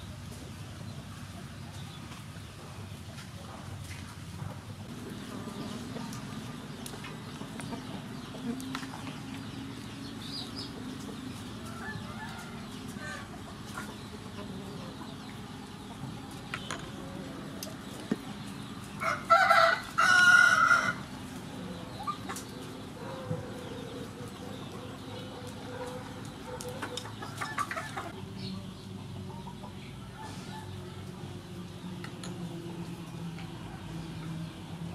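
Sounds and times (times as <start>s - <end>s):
chickens clucking faintly: 0.0s - 34.9s
rooster crowing: 11.6s - 13.3s, 19.0s - 21.0s.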